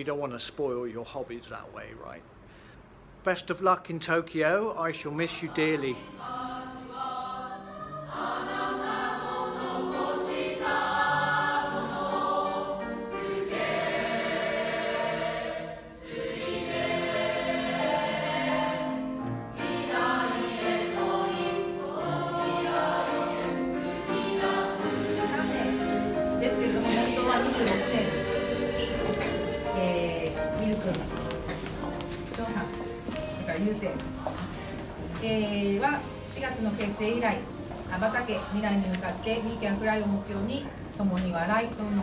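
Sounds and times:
choir singing: 5.1 - 31.6, 34.0 - 35.2.

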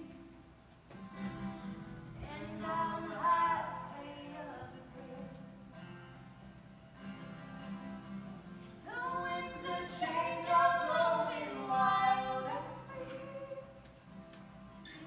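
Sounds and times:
strummed acoustic guitar: 0.9 - 15.0
man and woman singing: 2.2 - 5.6, 8.9 - 13.8.

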